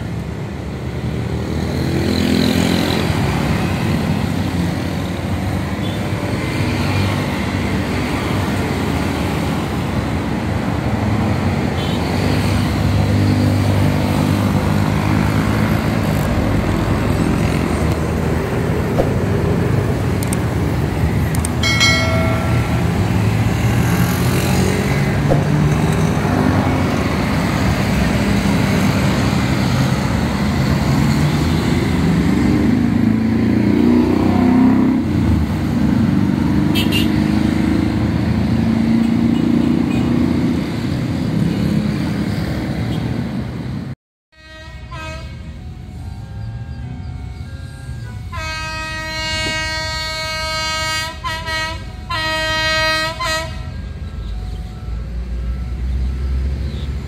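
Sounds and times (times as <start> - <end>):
traffic passing: 0.0 - 57.0
vehicle horn beep: 36.8 - 37.2, 44.4 - 45.5.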